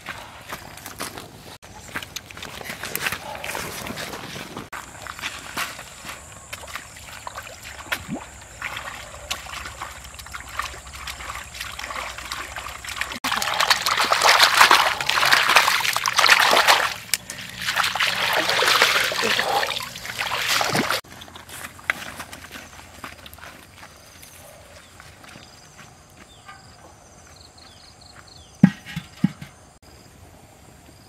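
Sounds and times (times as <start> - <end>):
feet wading through shallow water: 2.4 - 21.0
fish thrashing splashing in basket: 6.6 - 21.0.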